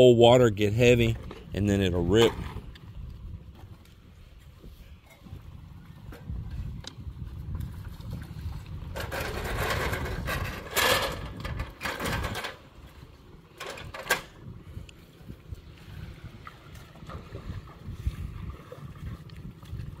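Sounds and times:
wind rumble on microphone: 0:00.0 - 0:20.0
stones scraping and rattling: 0:08.9 - 0:12.6.

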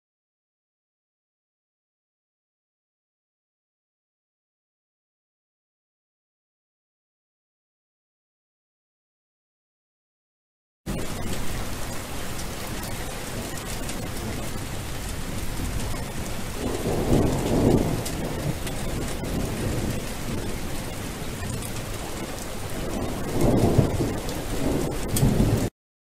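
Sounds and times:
rolling thunder: 0:10.9 - 0:25.7
steady rain: 0:10.9 - 0:25.7.

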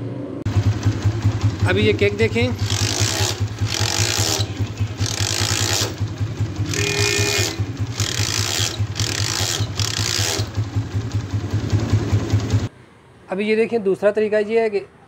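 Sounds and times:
motorcycle engine idling: 0:00.5 - 0:12.7
spanner scraping on bolt: 0:02.6 - 0:10.7.

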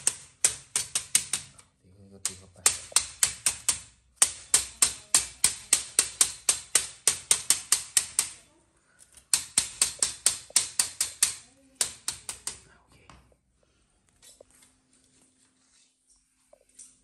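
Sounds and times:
rubber mallet tapping metal frame: 0:00.0 - 0:01.6, 0:02.2 - 0:08.4, 0:09.3 - 0:12.6.

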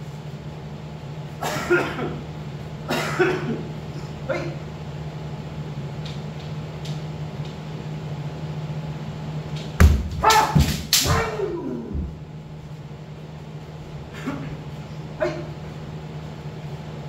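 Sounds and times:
steady low hum: 0:00.0 - 0:17.0
foot stamp on wooden floor: 0:09.8 - 0:11.2
bamboo swords striking armour: 0:09.8 - 0:11.4
short loud shouts: 0:10.2 - 0:11.9.

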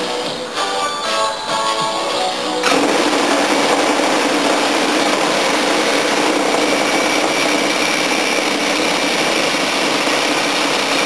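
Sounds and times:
reciprocating saw cutting metal: 0:02.6 - 0:11.0.

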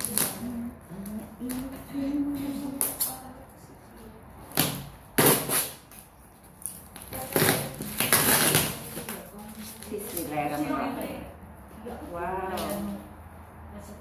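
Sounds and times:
packing tape tearing: 0:00.0 - 0:00.6, 0:04.5 - 0:10.3.

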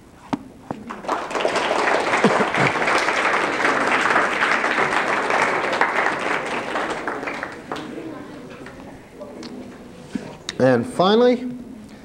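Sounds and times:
audience applauding: 0:00.8 - 0:09.0.

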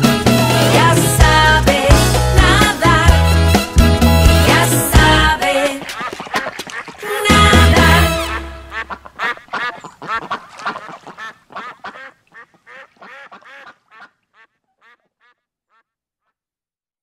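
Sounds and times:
duck quacking: 0:04.4 - 0:16.4.

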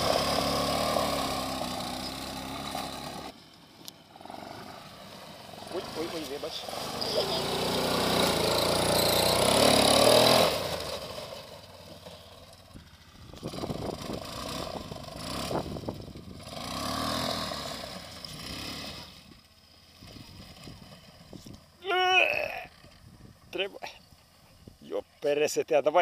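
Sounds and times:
quad bike engine revving: 0:00.0 - 0:23.2.

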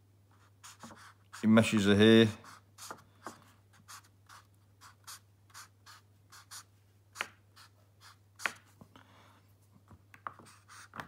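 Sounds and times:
marker scratching on paper: 0:00.3 - 0:01.8, 0:02.4 - 0:08.7, 0:10.3 - 0:11.0.

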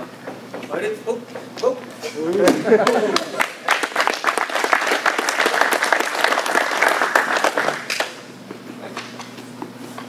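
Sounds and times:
crowd applauding: 0:02.8 - 0:08.3.

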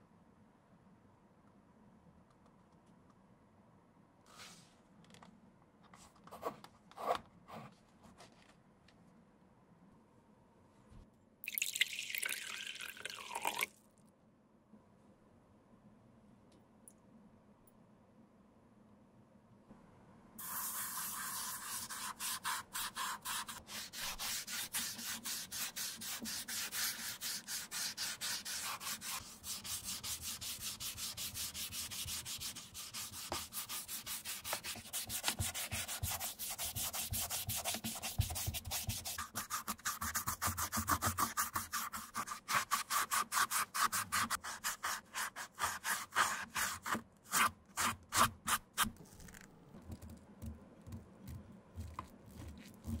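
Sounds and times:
cotton ball rubbing leather shoe: 0:50.8 - 0:53.0.

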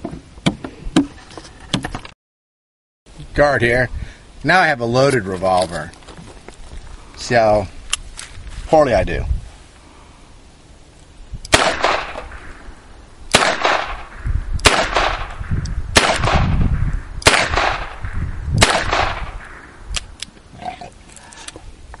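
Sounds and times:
revolver shots with echo: 0:17.2 - 0:19.7.

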